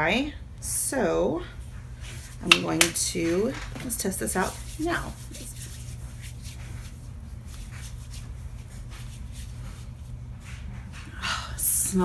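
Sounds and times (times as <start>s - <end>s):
steady low hum: 0.0s - 12.0s
hands rubbing together: 4.2s - 11.0s.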